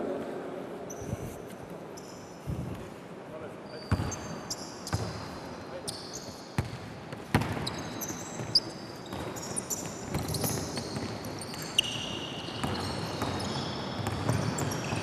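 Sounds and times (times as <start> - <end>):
sneakers squeaking: 2.0 - 2.7, 3.7 - 15.0
basketball bouncing on court: 3.9 - 4.3, 4.9 - 5.2, 6.6 - 15.0.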